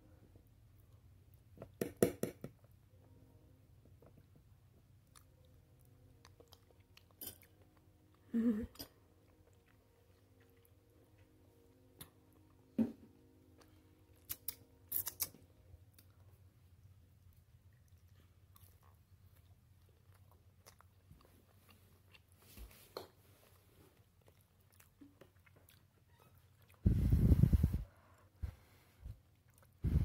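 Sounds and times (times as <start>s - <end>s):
faint steady hum: 0.0s - 30.0s
person chewing noodles: 4.1s - 11.4s, 13.6s - 26.8s, 29.2s - 29.8s.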